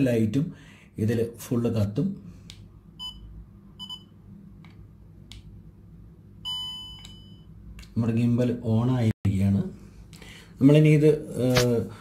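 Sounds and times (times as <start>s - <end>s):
electronic beeps: 6.5s - 7.5s.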